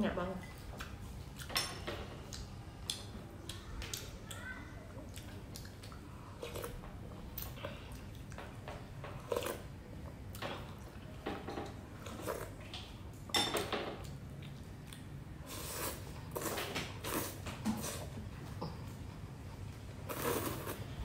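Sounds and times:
person chewing: 2.2 - 4.4, 5.0 - 8.4, 9.2 - 9.7, 14.0 - 18.2, 20.1 - 21.0
noodle slurping: 15.4 - 18.1, 20.1 - 21.0.

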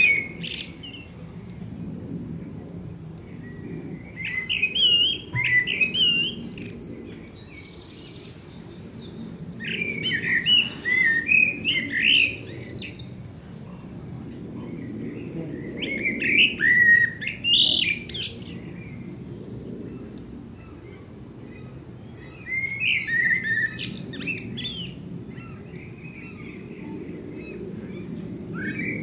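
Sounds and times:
blackbird singing: 0.0 - 1.1, 3.4 - 13.2, 14.6 - 18.7, 21.5 - 28.0.

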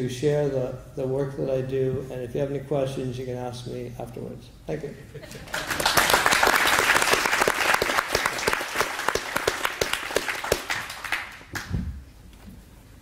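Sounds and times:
crowd applauding: 5.3 - 11.7.

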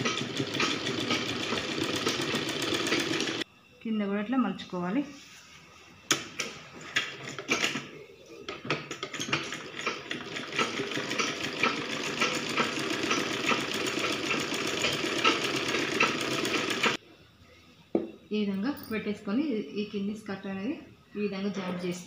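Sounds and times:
sewing machine stitching fabric: 0.0 - 3.4, 9.0 - 17.0.

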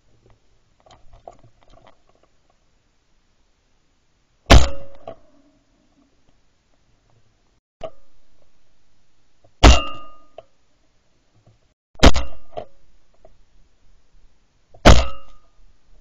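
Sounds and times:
shotgun shots with metallic ring: 4.5 - 5.1, 9.6 - 10.3, 12.0 - 12.5, 14.8 - 15.4.

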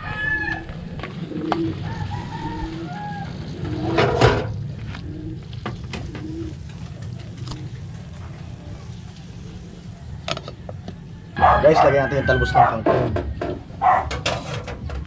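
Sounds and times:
rooster crowing: 0.0 - 0.8, 1.8 - 3.7, 11.1 - 13.0
chickens calling: 0.0 - 14.1.

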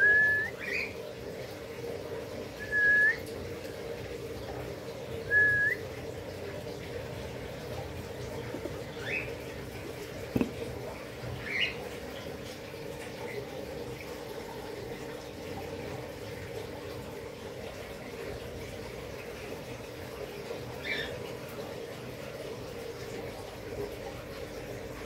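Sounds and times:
cockatiel whistling: 0.0 - 0.5, 2.6 - 3.2, 5.3 - 5.8.

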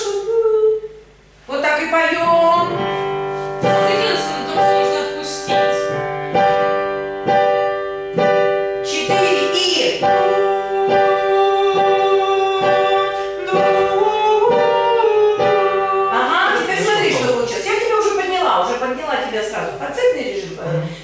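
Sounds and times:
piano chords: 2.0 - 18.8.

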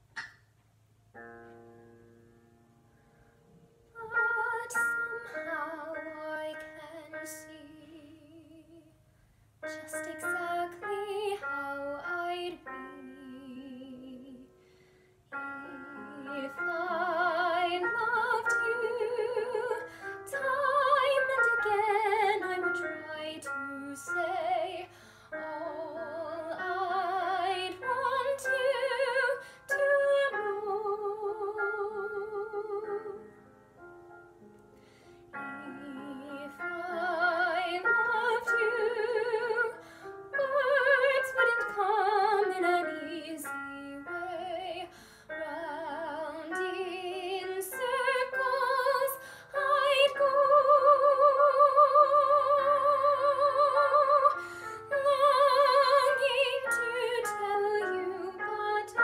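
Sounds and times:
woman singing ballad: 9.7 - 14.5, 15.5 - 33.2, 35.4 - 59.0.

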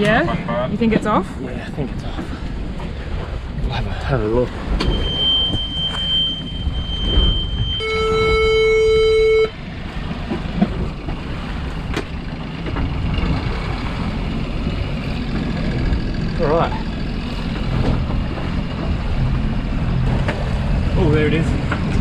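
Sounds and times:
boat engine running: 0.0 - 22.0
high warning beep: 4.8 - 9.6
low buzzer tone: 4.8 - 9.6.

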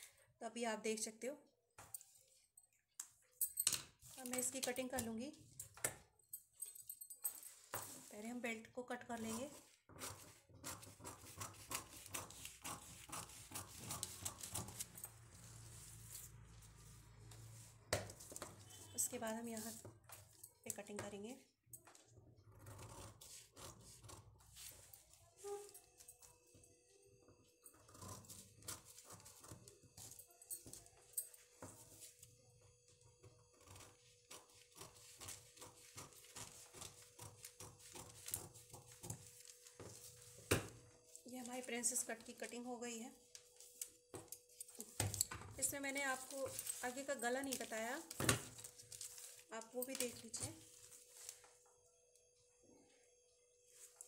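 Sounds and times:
scissors snipping paper: 10.0 - 17.4
scissors snipping newspaper: 10.0 - 19.9, 33.6 - 40.6, 44.7 - 51.4.

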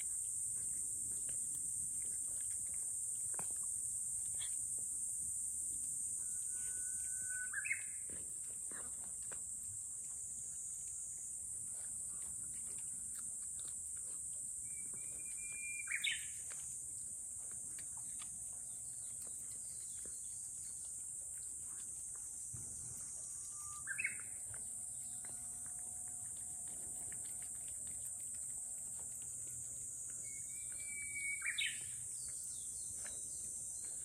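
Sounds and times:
songbird whistling song: 6.7 - 8.0, 14.6 - 16.4, 23.4 - 24.4, 30.2 - 33.2.

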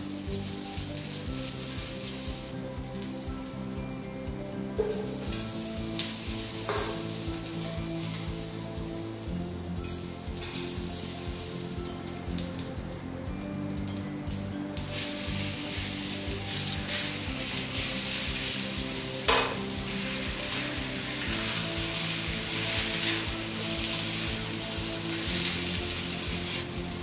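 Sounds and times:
onion sizzling in oil: 0.0 - 27.0
soft background music: 0.0 - 27.0
spatula knocking on wok: 4.8 - 5.4, 6.7 - 7.0, 19.3 - 19.7
metal spatula scraping wok: 19.3 - 26.7.

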